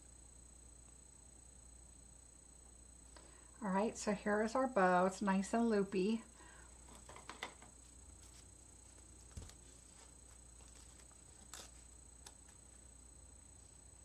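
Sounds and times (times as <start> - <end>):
faint clicks and rustles of handling: 6.6 - 14.0.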